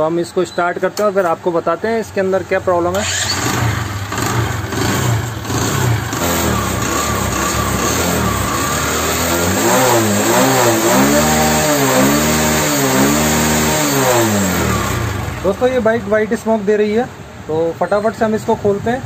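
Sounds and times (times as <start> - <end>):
motorcycle engine revving: 2.9 - 16.3.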